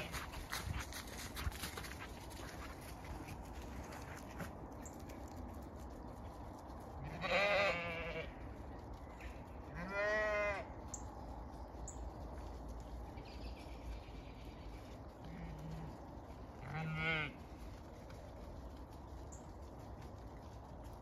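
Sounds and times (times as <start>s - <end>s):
sheep bleating: 7.0s - 8.4s, 9.7s - 10.7s, 16.6s - 17.4s.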